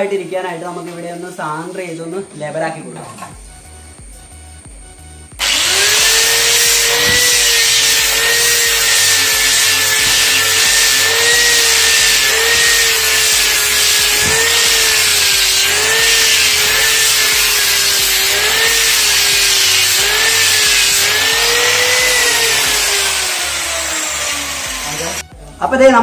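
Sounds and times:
angle grinder sanding wood: 5.4 - 25.3.

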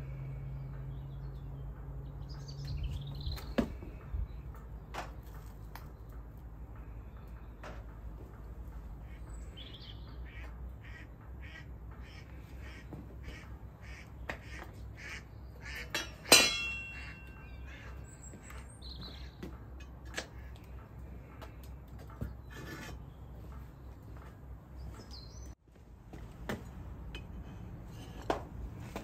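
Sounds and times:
bird calling: 8.8 - 25.6
metal tongs clanking: 15.8 - 17.6.

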